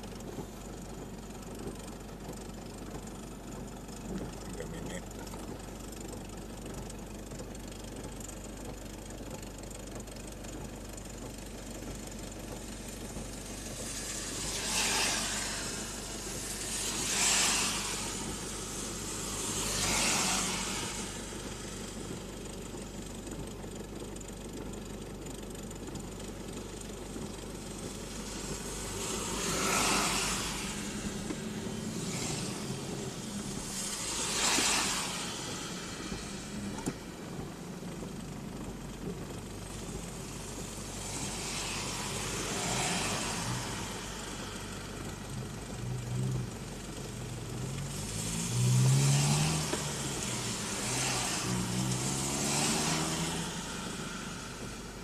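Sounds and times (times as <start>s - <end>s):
car engine drone: 0.0s - 55.0s
heavy rain: 12.6s - 23.5s, 26.7s - 55.0s
swishes of hiss: 12.8s - 22.7s, 27.4s - 38.2s, 39.6s - 46.5s, 47.4s - 55.0s.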